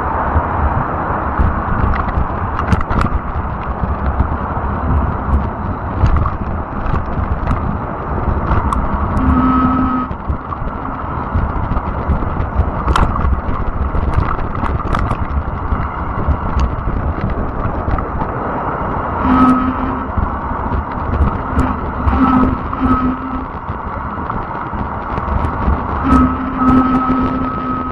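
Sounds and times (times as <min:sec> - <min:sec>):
bike tires rumbling on trail: 0:00.0 - 0:27.9
wind buffeting microphone: 0:00.0 - 0:27.9
clicks and rattles: 0:01.4 - 0:04.3, 0:10.1 - 0:18.3
brief humming tones: 0:09.1 - 0:10.2, 0:19.2 - 0:20.3, 0:21.4 - 0:23.6, 0:26.0 - 0:27.9.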